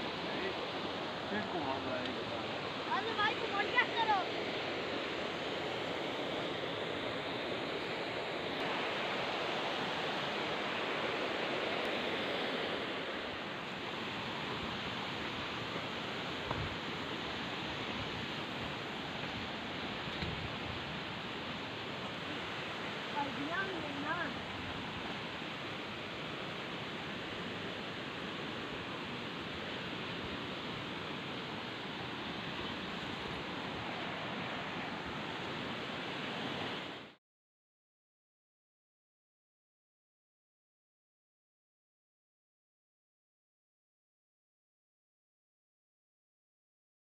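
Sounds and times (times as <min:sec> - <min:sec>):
stream rushing over stones: 0:00.0 - 0:37.2
soft thump: 0:16.5 - 0:16.8.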